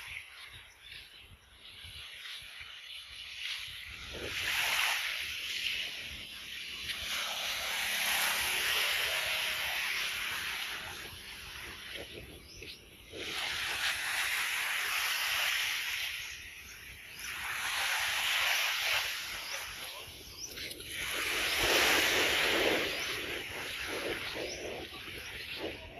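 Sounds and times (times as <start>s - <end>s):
small waves washing onto sand: 1.7s - 25.9s
wind buffeting microphone: 3.6s - 14.6s, 19.2s - 25.9s.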